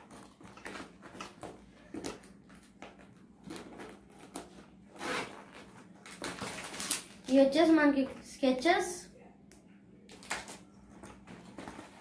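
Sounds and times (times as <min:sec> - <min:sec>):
plastic pouch crinkling: 0:05.5 - 0:07.4.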